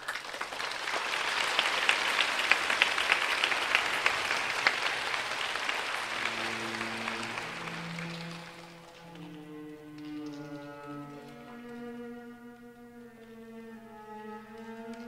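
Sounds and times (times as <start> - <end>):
audience applauding: 0.0 - 10.6
orchestral music: 3.9 - 15.0.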